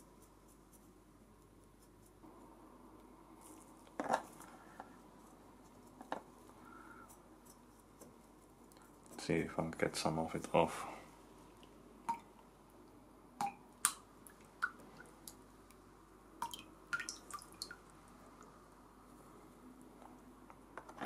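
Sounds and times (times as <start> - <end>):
paintbrush ticking and tapping: 7.0 - 9.3.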